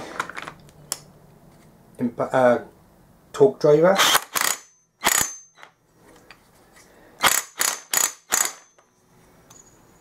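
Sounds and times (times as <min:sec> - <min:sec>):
power driver spinning nut: 0:07.2 - 0:08.7.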